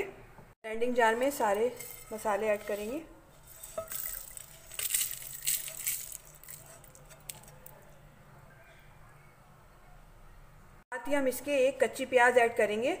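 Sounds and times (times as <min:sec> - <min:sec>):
seeds rattling into a glass jar: 0:03.6 - 0:07.7.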